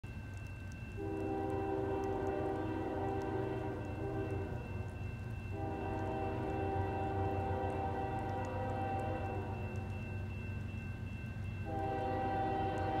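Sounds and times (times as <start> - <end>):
locomotive horn blasts: 1.0 - 4.9, 5.5 - 9.8, 11.6 - 13.0.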